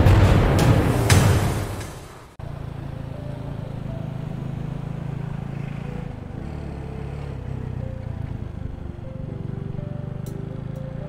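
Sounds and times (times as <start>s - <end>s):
motorcycle engine running: 2.4s - 11.0s.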